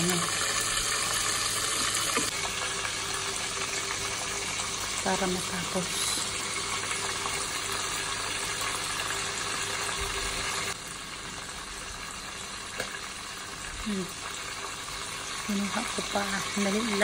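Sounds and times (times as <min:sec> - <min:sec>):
food frying in hot oil: 0:00.0 - 0:17.0.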